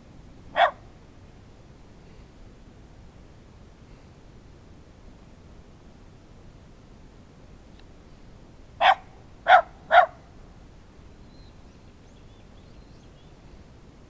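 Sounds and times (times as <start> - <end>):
dog barking sharply: 0.6 - 0.8, 8.8 - 10.2.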